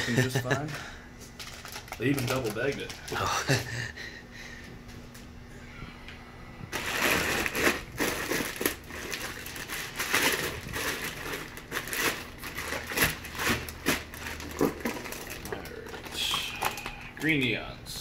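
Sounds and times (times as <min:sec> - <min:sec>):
plastic bag liner crinkling: 0:01.3 - 0:03.3, 0:06.7 - 0:17.0.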